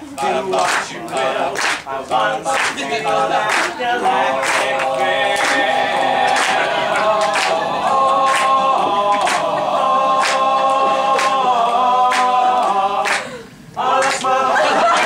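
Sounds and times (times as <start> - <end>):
male voices singing a cappella: 0.0 - 15.0.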